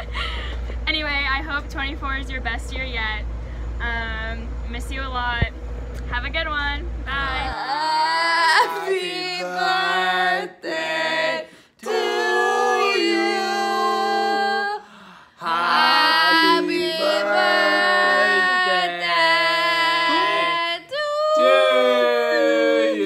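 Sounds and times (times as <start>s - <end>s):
people singing unaccompanied: 7.1s - 14.8s, 15.4s - 23.0s.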